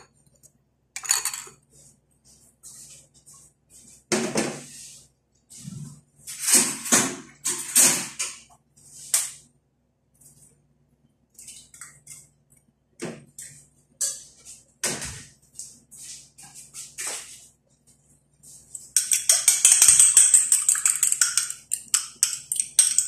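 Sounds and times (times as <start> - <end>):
kitchen utensils clinking: 1.0 - 1.6.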